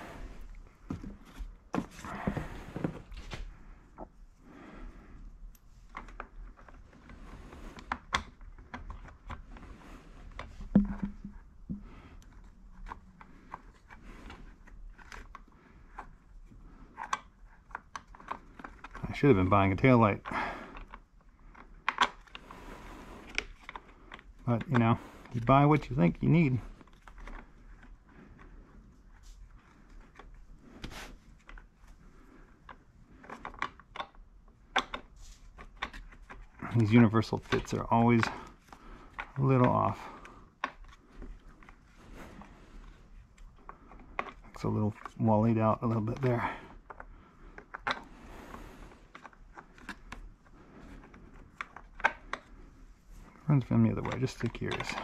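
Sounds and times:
plastic scraping: 0:05.9 - 0:55.0
plastic handling clicks and taps: 0:10.4 - 0:13.6.

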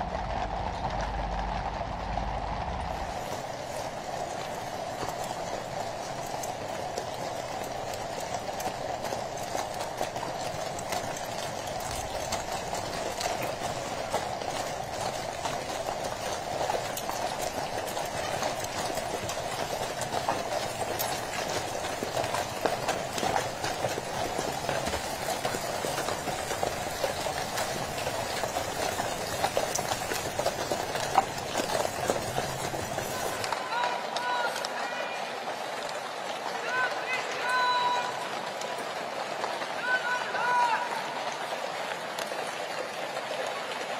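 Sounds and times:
coach wheels rumbling: 0:00.0 - 0:43.1
horse hooves clip-clopping: 0:00.0 - 0:43.9.

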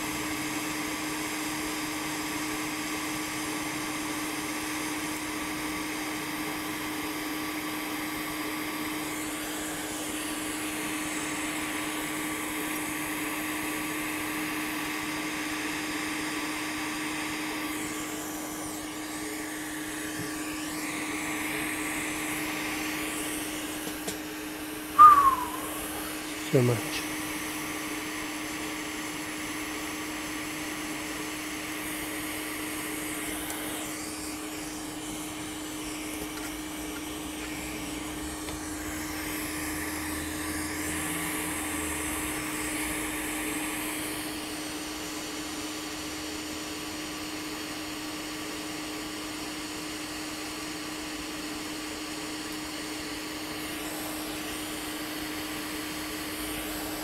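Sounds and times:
hot air station blowing: 0:00.0 - 0:57.0.

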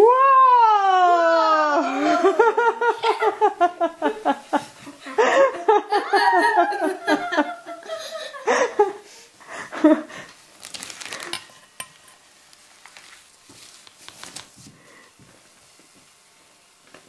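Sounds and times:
child laughing: 0:01.1 - 0:09.0
foam fizzing and crackling: 0:10.4 - 0:11.4.

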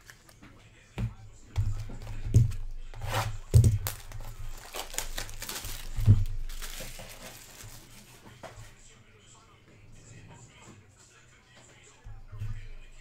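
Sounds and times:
plastic wrap crinkling and tearing: 0:03.0 - 0:08.2.

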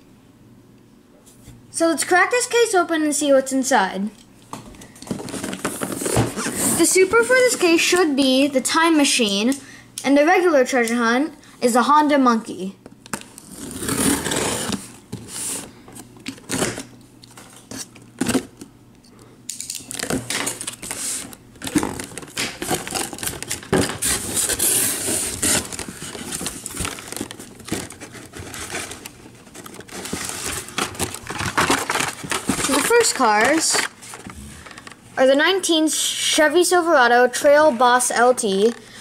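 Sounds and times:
cardboard flaps scraping and rustling: 0:05.1 - 0:07.8, 0:13.4 - 0:15.7, 0:20.0 - 0:34.8
plastic packaging clicks and crinkles: 0:19.5 - 0:35.0.

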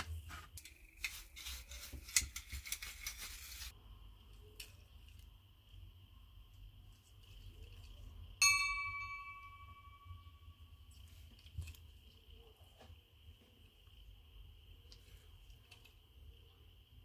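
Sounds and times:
faint high-pitched hum: 0:03.7 - 0:17.0.

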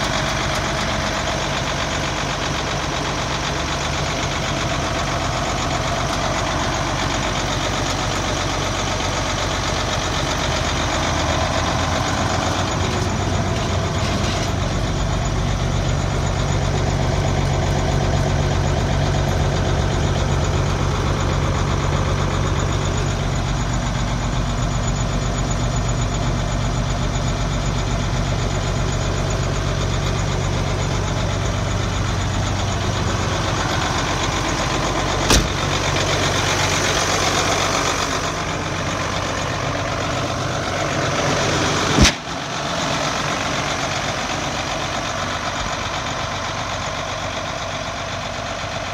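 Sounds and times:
diesel truck engine idling: 0:00.0 - 0:48.9.

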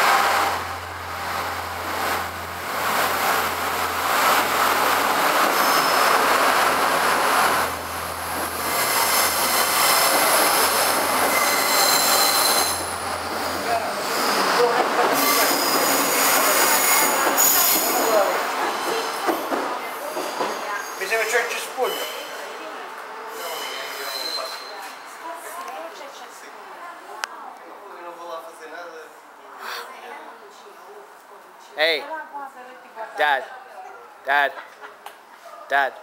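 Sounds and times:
train rolling past rumbling: 0:00.0 - 0:22.8
train wheels squealing: 0:05.5 - 0:06.2, 0:08.6 - 0:13.0, 0:14.1 - 0:19.3, 0:20.1 - 0:22.6, 0:23.3 - 0:25.0.

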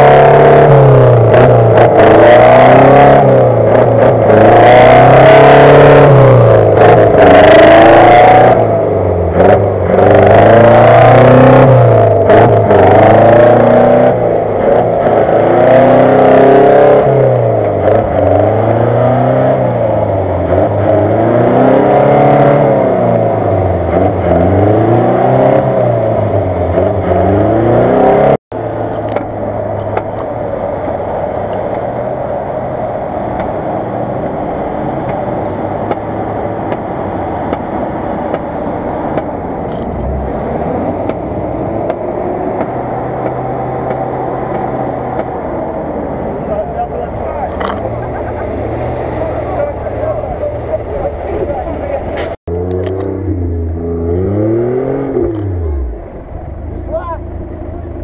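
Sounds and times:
off-road engine revving: 0:00.0 - 0:58.0
quieter steady engine note: 0:28.6 - 0:54.3, 0:55.0 - 0:58.0.

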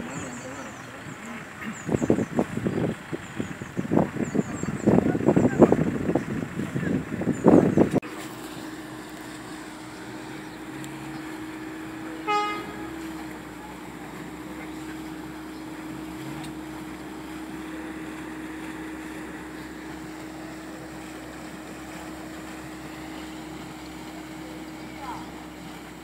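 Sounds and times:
engine running steadily: 0:00.0 - 0:26.0
car horn toot: 0:12.2 - 0:13.2.

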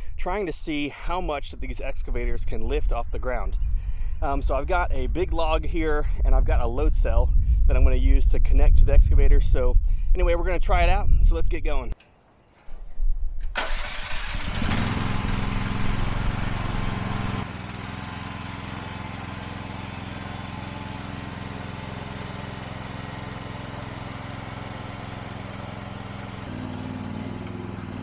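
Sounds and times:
small excavator engine running: 0:13.6 - 0:28.0.

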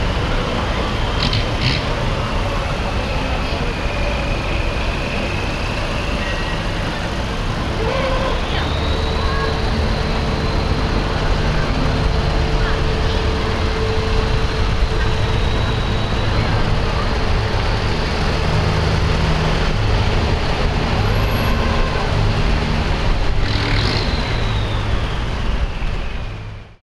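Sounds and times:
military vehicles driving past: 0:00.0 - 0:26.8.

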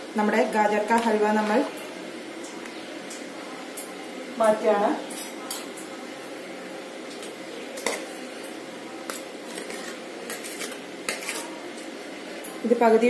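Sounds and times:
spoon scooping food: 0:07.2 - 0:11.9.

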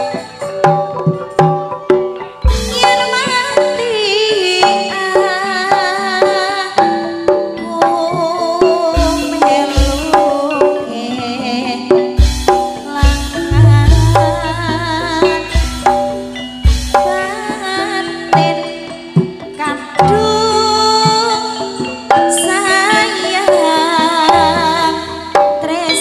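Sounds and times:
gamelan metallophones and gongs: 0:00.0 - 0:26.0
deep drum beats: 0:12.2 - 0:17.2.

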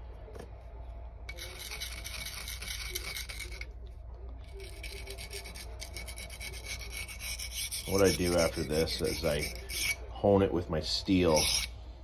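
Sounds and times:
knife scraping sharpening stone: 0:01.3 - 0:03.7, 0:04.6 - 0:10.0, 0:11.3 - 0:11.7.

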